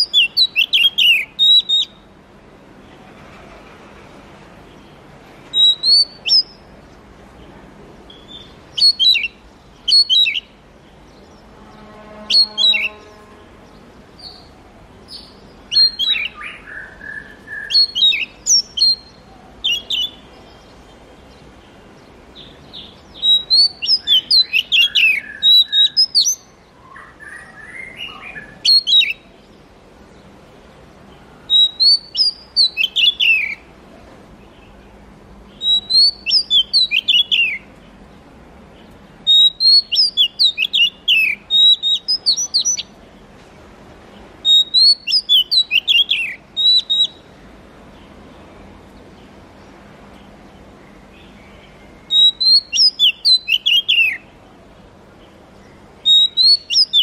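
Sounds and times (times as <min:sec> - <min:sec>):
bird singing whistled phrases: 0:00.0 - 0:02.1, 0:05.5 - 0:06.6, 0:08.1 - 0:10.6, 0:12.2 - 0:13.1, 0:15.1 - 0:20.2, 0:22.4 - 0:29.3, 0:31.5 - 0:33.6, 0:35.6 - 0:37.7, 0:39.3 - 0:42.9, 0:44.4 - 0:47.3, 0:52.0 - 0:54.3, 0:56.0 - 0:57.0.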